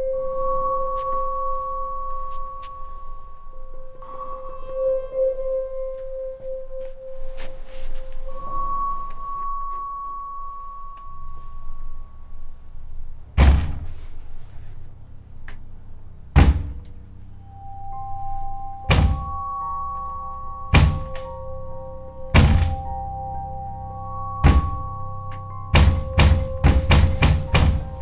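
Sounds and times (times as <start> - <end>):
eerie droning horror score: 0.0 - 28.0
heavy booming thuds: 13.4 - 14.0, 16.3 - 16.8, 25.8 - 28.0.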